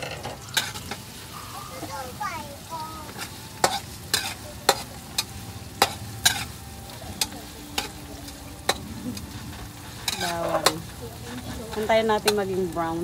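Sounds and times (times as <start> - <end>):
onion and garlic sizzling in oil: 0.0 - 13.0
metal spatula clacking on wok: 3.1 - 9.3, 10.0 - 11.0, 11.8 - 12.8.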